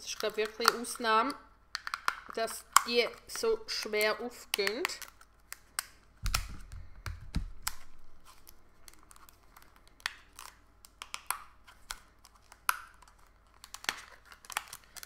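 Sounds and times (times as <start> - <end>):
sharp plastic clicks and crackles: 0.0 - 15.0
plastic clamshell being pried open: 1.7 - 3.0, 4.6 - 8.0, 10.0 - 15.0.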